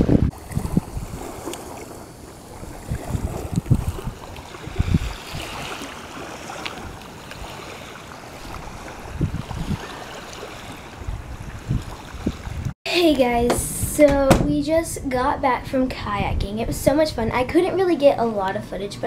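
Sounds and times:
small waves washing: 0.0s - 12.7s
wind buffeting microphone: 0.0s - 19.0s.

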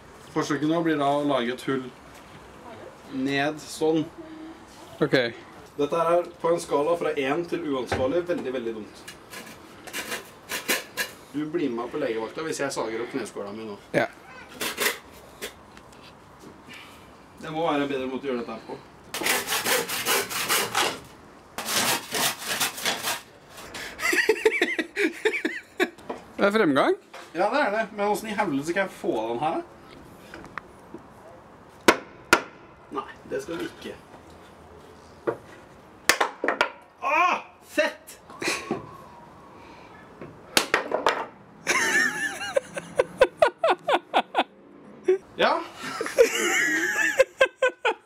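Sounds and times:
hand saw cutting wood: 9.3s - 11.1s, 19.1s - 24.0s
hammer striking nails into wood: 31.9s - 32.6s.

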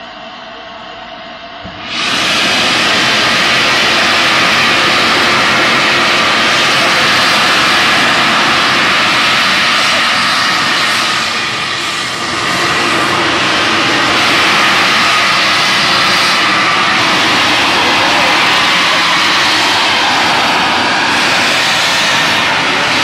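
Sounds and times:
locomotive steam hissing: 1.7s - 23.0s.

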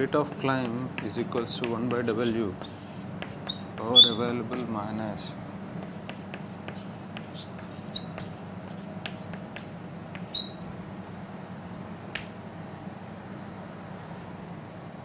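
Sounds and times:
chalk squeaks: 0.0s - 4.7s, 5.8s - 10.6s
chalk tapping and scratching: 0.0s - 4.8s, 5.8s - 10.6s.

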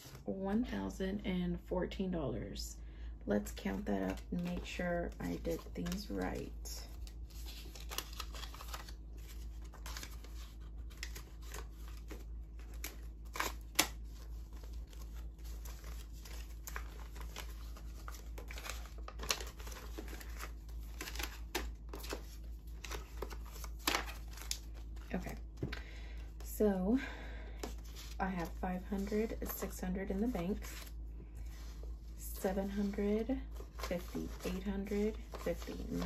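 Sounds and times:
steady low hum: 0.0s - 36.0s
paper bills snapping and rustling: 4.0s - 25.8s, 32.6s - 36.0s.

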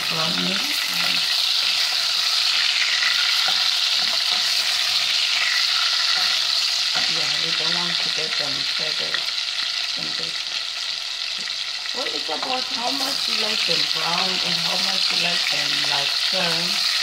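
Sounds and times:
wooden spoon stirring in pot: 0.0s - 8.4s
meatballs sizzling in hot oil: 0.0s - 17.0s.

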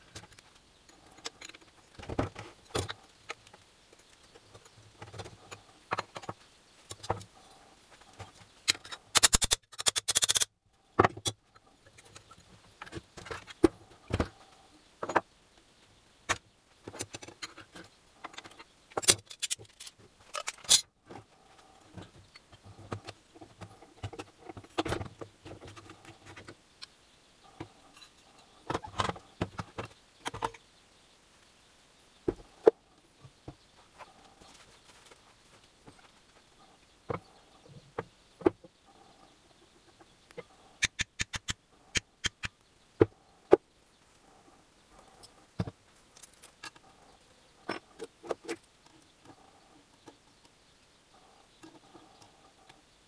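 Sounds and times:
metal parts clinking: 8.7s - 10.5s, 18.3s - 20.8s.

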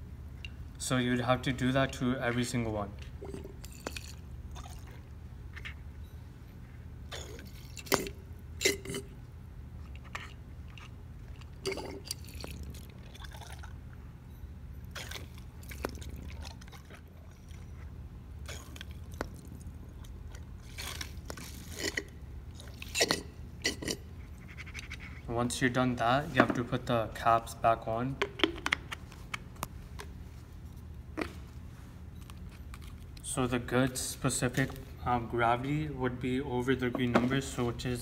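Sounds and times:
steady low hum: 0.0s - 38.0s
liquid gurgling and dripping: 3.2s - 5.2s, 9.9s - 14.0s, 14.8s - 24.0s.

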